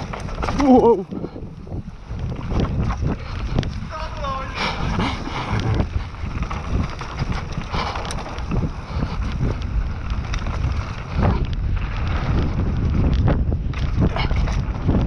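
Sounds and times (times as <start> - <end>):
bike knocks and rattles: 0.0 - 4.4, 5.0 - 15.0
bike tyres rolling on dirt: 0.0 - 15.0
wind buffeting microphone: 0.0 - 15.0.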